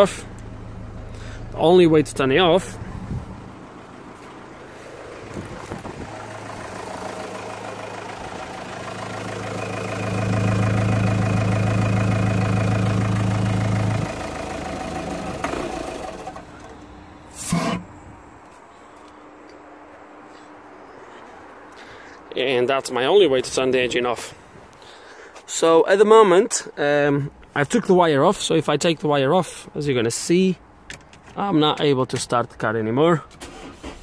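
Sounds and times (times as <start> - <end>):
diesel engine idling: 0.0 - 18.3.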